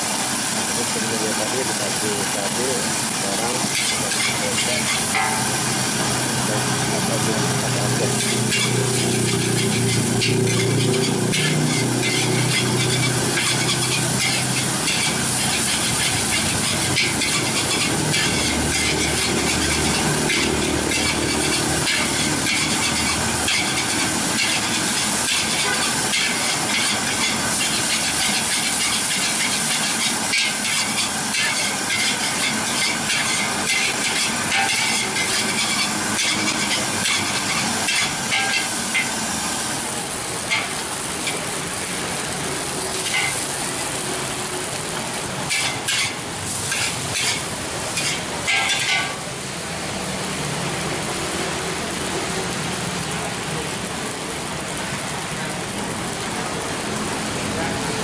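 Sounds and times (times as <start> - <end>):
food sizzling in a wok: 0.0 - 58.0
metal spatula scraping a pan: 3.4 - 5.5, 7.5 - 39.2, 40.5 - 41.4, 43.0 - 43.5, 45.5 - 49.2.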